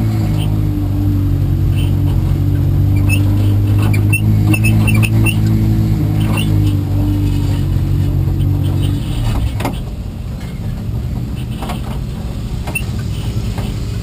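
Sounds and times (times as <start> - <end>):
car engine running: 0.0 - 14.0
short high squeaks: 2.9 - 5.5, 6.2 - 9.9, 12.7 - 13.8.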